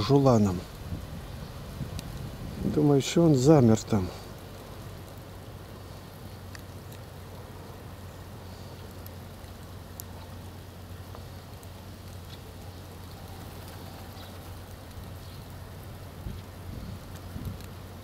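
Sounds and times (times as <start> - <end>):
constant low hum: 0.0 - 18.0
outdoor background hiss: 0.0 - 18.0
faint ticks: 1.9 - 2.3, 6.4 - 7.1, 8.6 - 10.4.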